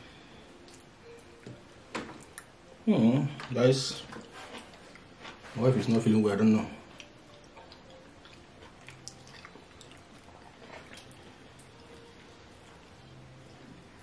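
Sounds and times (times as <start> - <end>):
chewing: 6.9 - 12.1
sticky squishes of fingers in food: 6.9 - 12.1.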